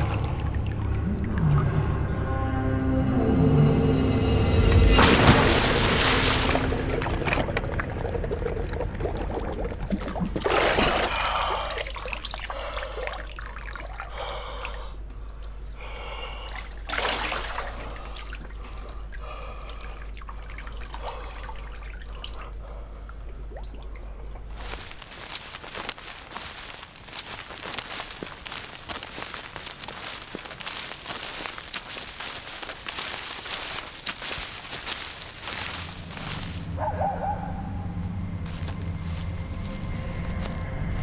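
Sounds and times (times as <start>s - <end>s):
water pouring and splashing: 0.0s - 1.8s, 5.0s - 14.7s, 16.4s - 19.0s, 23.4s - 36.6s
steady low hum: 34.0s - 41.0s.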